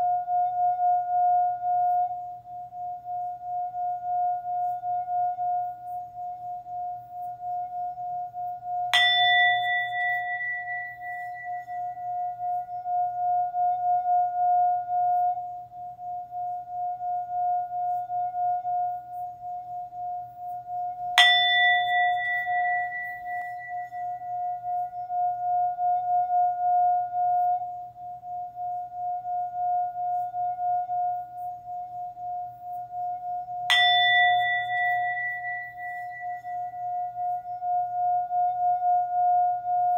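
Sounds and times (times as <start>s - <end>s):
singing bowl humming low note: 0.0s - 39.9s
singing bowl strike ringing: 8.7s - 19.5s, 20.7s - 27.7s, 33.0s - 39.9s.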